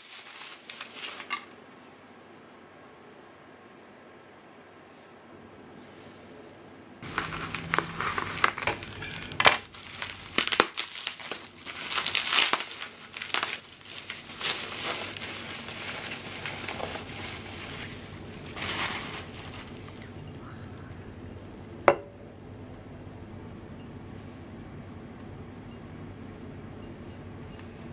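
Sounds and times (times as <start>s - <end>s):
bubble wrap crinkling: 0.0s - 1.5s, 7.0s - 20.2s.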